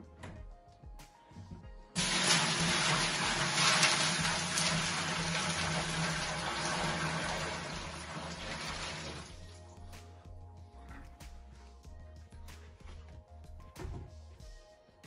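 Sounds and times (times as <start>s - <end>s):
water pouring into aquarium: 2.0s - 9.6s.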